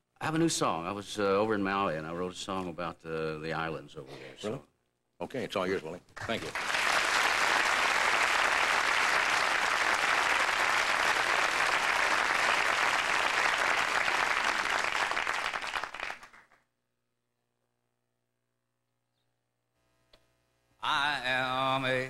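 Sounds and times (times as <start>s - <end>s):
audience applauding: 6.2s - 16.6s.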